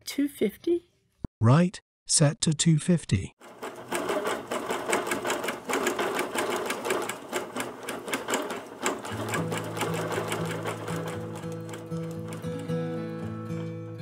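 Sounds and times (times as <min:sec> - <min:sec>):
sewing machine needle stitching: 0:03.4 - 0:12.6
background music with steady tones: 0:09.0 - 0:14.0.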